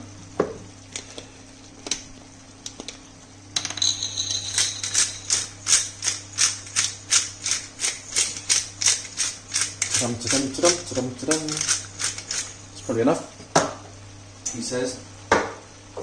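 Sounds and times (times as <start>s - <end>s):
pepper mill grinding: 3.7s - 13.0s.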